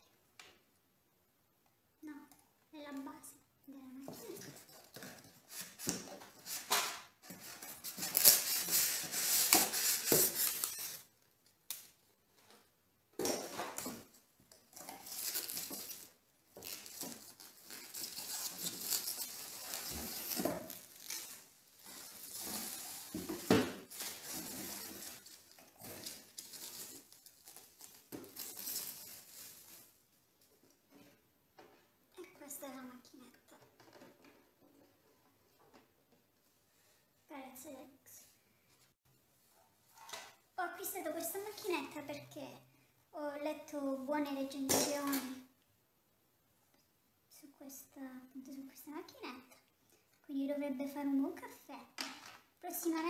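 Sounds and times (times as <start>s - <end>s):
plastic and styrofoam crinkling: 4.2s - 11.2s, 14.8s - 30.0s.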